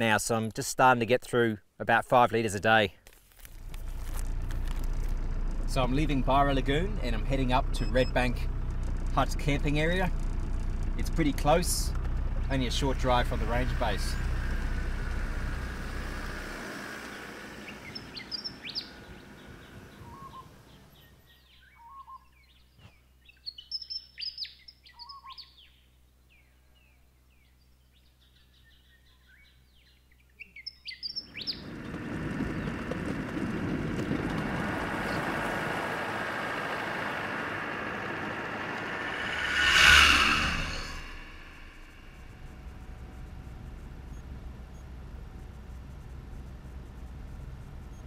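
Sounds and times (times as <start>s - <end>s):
vehicle driving on gravel: 3.1s - 21.2s, 31.2s - 48.0s
vehicle driving off: 3.4s - 21.2s, 31.2s - 48.0s
bird chirps and calls: 17.6s - 25.8s, 27.9s - 31.6s.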